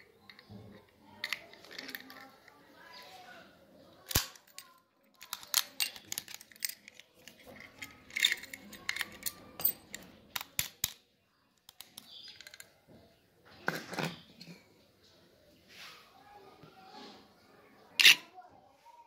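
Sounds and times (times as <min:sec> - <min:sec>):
padlock and keys clicking: 0:04.0 - 0:11.0.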